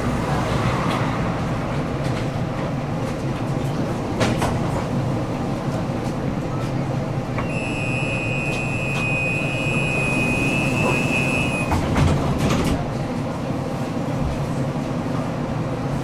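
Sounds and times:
tram doors shutting with knocks: 0.0 - 15.7
low hum of tram: 0.0 - 16.0
high warning beep: 7.4 - 11.8.

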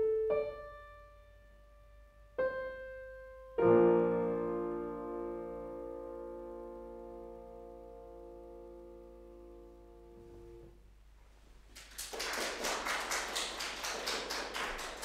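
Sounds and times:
audience applause: 11.7 - 15.0.

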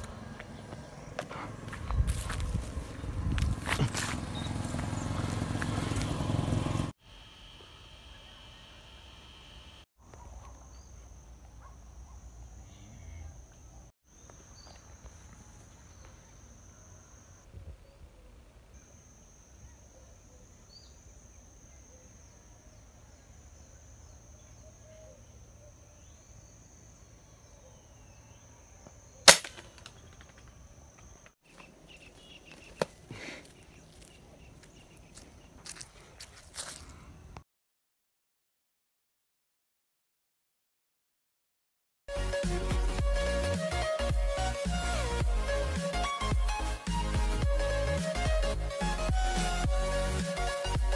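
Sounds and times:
faint high-pitched tone: 7.0 - 9.8, 14.5 - 17.7
gunshot: 29.3 - 29.8.

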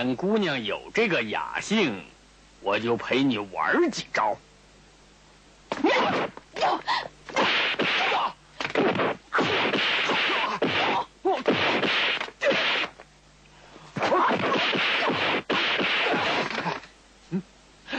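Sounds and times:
swishes and whacking hits: 5.7 - 6.4, 7.3 - 13.0, 14.0 - 16.8.

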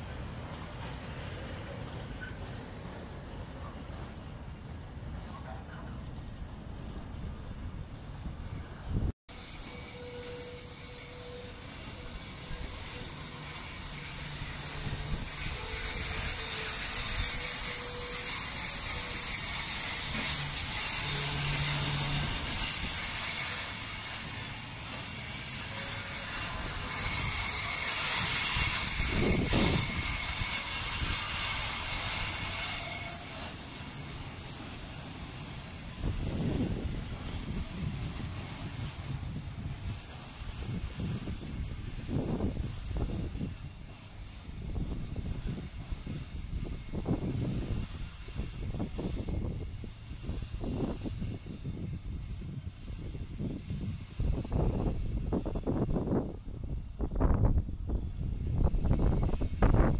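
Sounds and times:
train wheels squealing: 0.0 - 59.9.

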